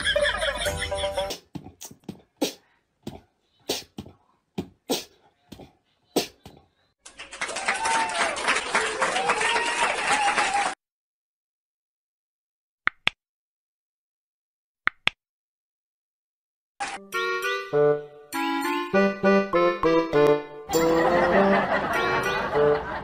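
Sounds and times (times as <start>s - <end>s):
jingly music: 0.4s - 1.4s, 17.0s - 23.0s
crowd applauding and cheering: 7.1s - 10.8s
people whooping: 7.3s - 10.8s.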